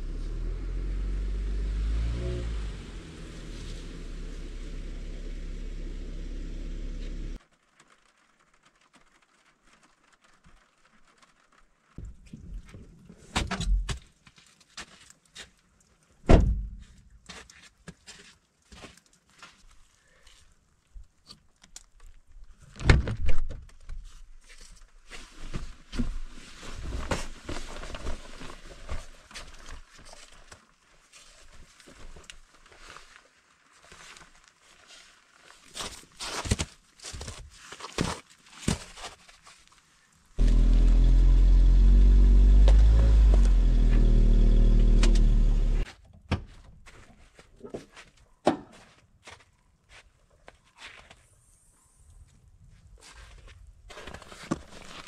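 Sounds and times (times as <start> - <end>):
thuds and knocks: 16.3 - 17.0
footsteps in wet snow: 16.8 - 20.6, 24.4 - 45.8.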